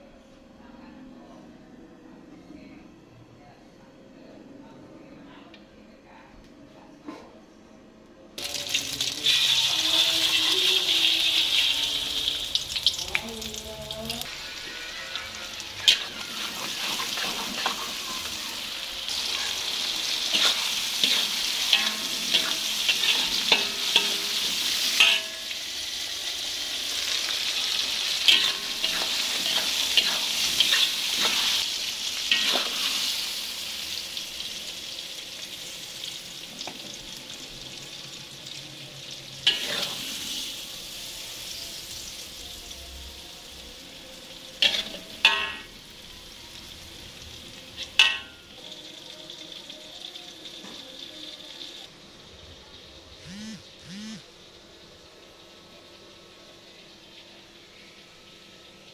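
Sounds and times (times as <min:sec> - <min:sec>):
food sizzling in hot oil: 0:08.4 - 0:58.9
spatula scraping a pan: 0:14.5 - 0:18.4, 0:19.1 - 0:25.3, 0:28.2 - 0:31.6, 0:32.3 - 0:33.2.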